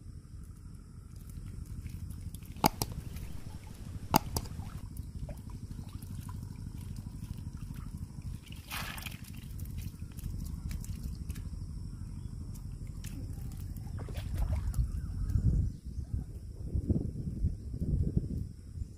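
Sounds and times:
water dripping and sloshing: 1.1s - 11.6s, 12.5s - 15.0s
sharp clicks: 2.6s - 4.8s
short splash: 2.6s - 9.9s.

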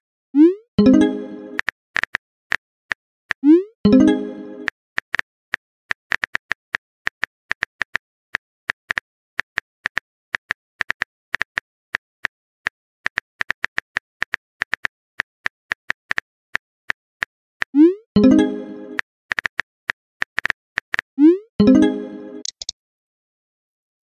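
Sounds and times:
phone keyboard typing clicks: 22.4s - 22.7s.

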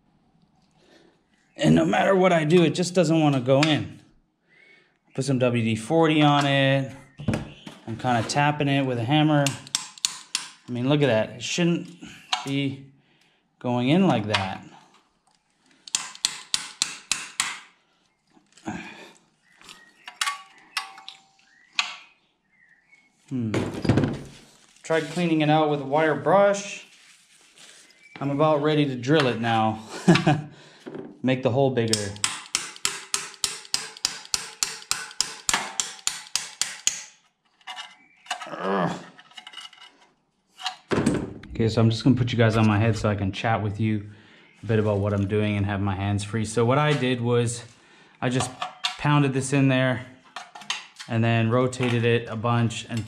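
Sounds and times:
hammer tapping steel pin: 9.4s - 10.6s, 15.9s - 17.7s, 31.9s - 37.2s.

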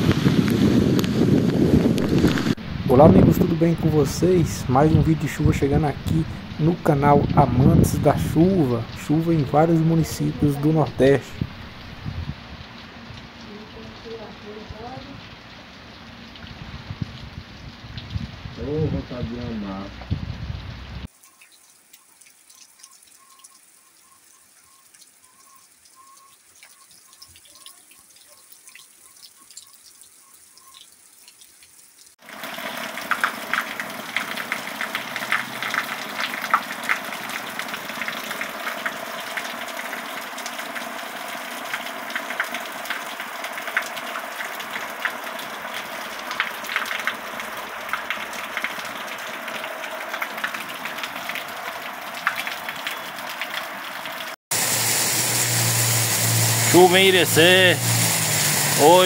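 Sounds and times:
heavy rain: 0.0s - 59.0s
water gushing onto concrete: 0.0s - 59.0s
short high pips: 54.5s - 59.0s.

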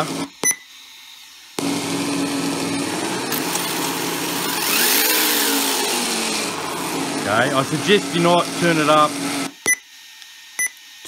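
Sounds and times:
simulated engine from speaker: 7.1s - 9.2s.

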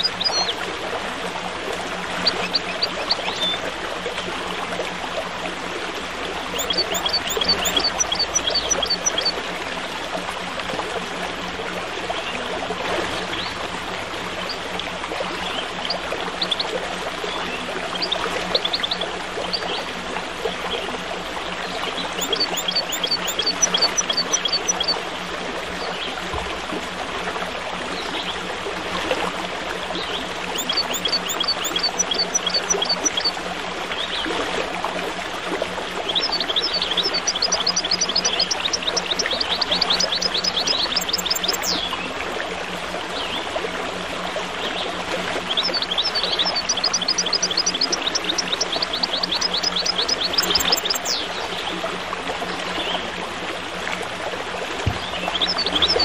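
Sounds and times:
stream babbling: 0.0s - 56.0s
small birds chirping: 2.2s - 3.6s, 6.5s - 9.3s, 22.0s - 24.9s, 30.5s - 33.3s, 36.1s - 41.9s, 45.5s - 51.4s, 54.9s - 56.0s.

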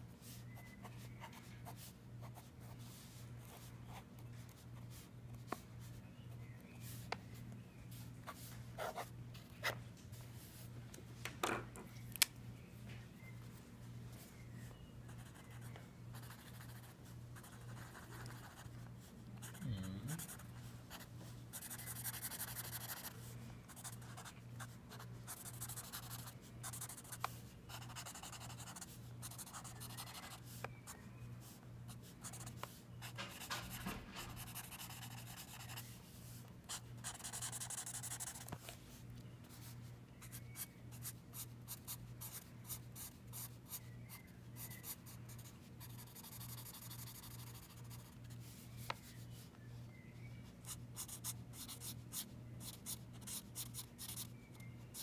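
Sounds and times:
faint low hum: 0.0s - 55.0s
marker scratching on paper: 20.2s - 24.3s, 24.9s - 30.5s, 31.4s - 35.9s, 36.7s - 38.6s, 44.6s - 48.4s, 50.6s - 54.3s.

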